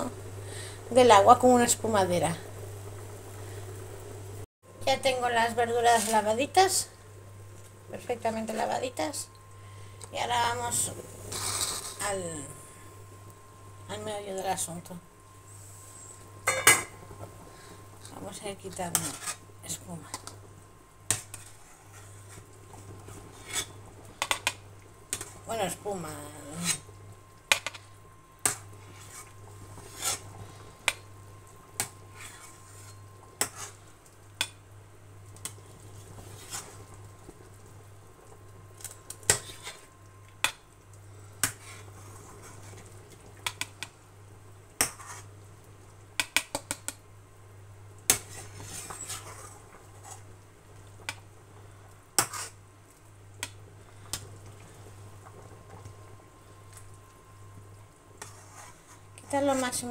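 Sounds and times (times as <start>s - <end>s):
steady low hum: 0.0s - 46.1s.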